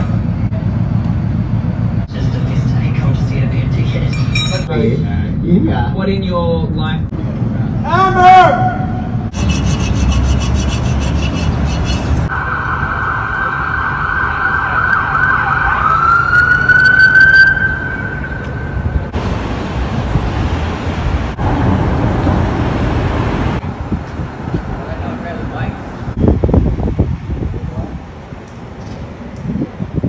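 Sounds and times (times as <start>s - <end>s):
street noise: 0.0s - 30.0s
emergency siren wailing: 12.2s - 19.2s.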